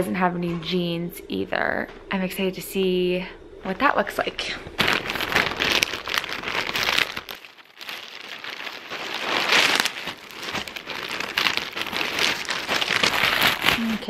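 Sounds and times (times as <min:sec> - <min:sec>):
plastic bag crinkling: 0:04.8 - 0:14.0.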